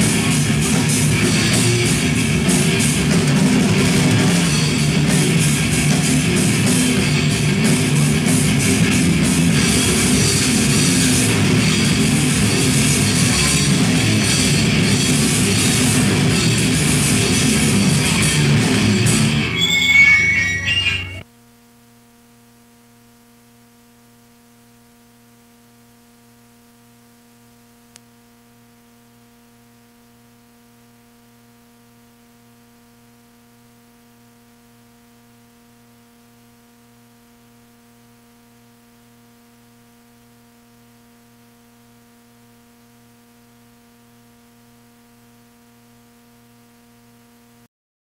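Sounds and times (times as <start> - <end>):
electrical hum with faint hiss: 21.3 - 47.7.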